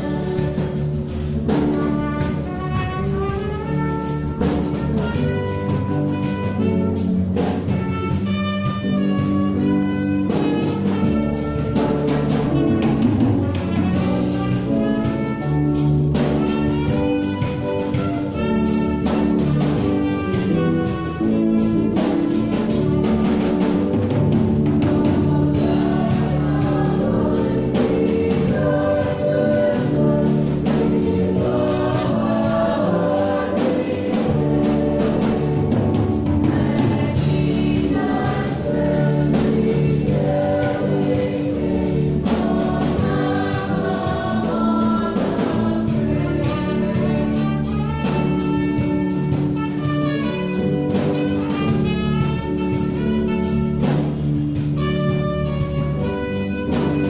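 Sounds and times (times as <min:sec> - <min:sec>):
choir singing a hymn: 0:00.0 - 0:54.7.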